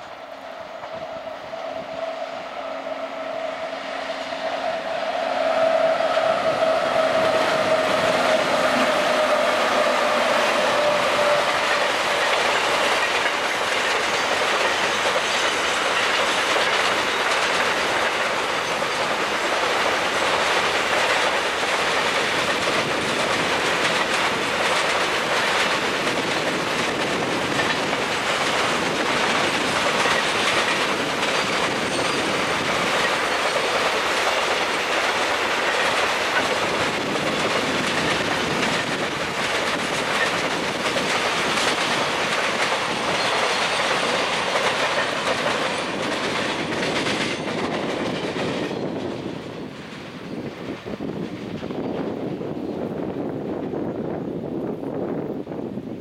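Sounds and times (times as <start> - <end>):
freight train rolling past: 0.0 - 56.0
wheels clattering on rail: 5.8 - 52.9.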